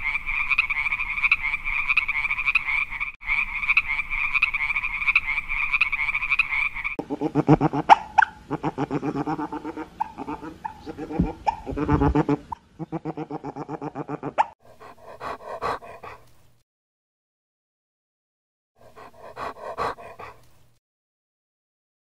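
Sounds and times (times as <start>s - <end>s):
frog croaking: 0.0s - 14.5s
otter chattering: 0.4s - 14.5s.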